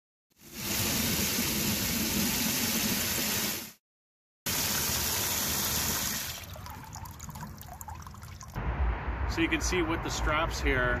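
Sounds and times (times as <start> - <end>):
water spraying into bucket: 0.4 - 3.8, 4.5 - 8.6.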